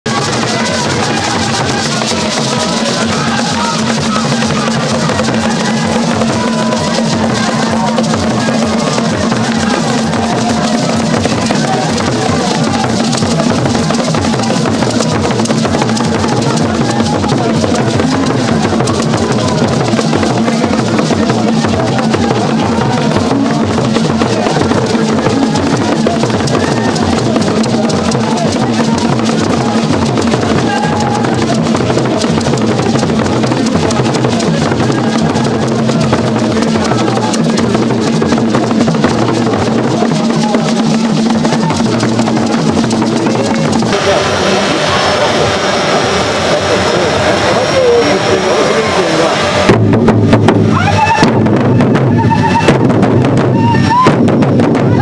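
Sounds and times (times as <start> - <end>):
many drums beating fast rhythm: 0.0 - 55.0
voices singing: 43.4 - 49.8
steady held note: 43.8 - 49.8.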